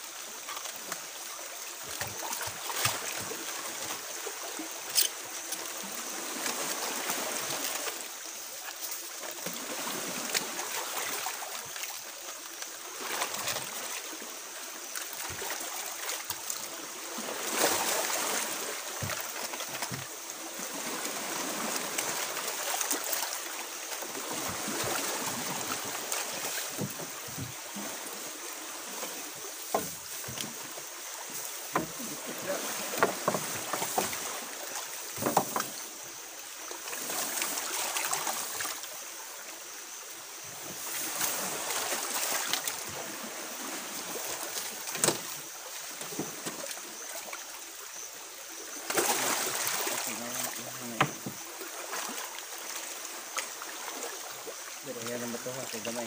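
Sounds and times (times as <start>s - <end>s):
water splashing around boat: 0.0s - 56.0s
knocks and rustling of net: 17.4s - 20.2s, 24.2s - 27.7s, 29.0s - 34.5s, 35.1s - 35.9s, 44.6s - 45.4s.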